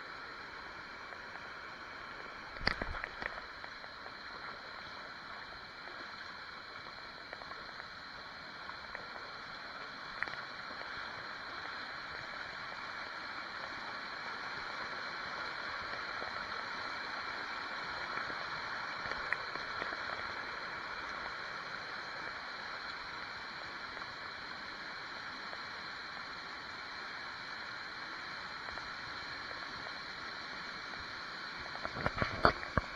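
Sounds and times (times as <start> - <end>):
river water rushing over rocks: 0.9 - 4.5
faint click: 2.5 - 5.0, 10.1 - 10.9, 19.0 - 20.3.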